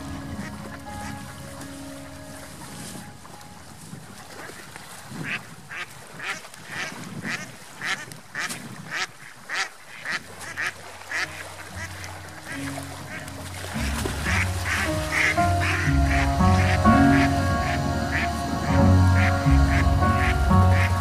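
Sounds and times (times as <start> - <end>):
background music: 0.0 - 3.6, 11.6 - 21.0
ducks quacking: 5.2 - 21.0.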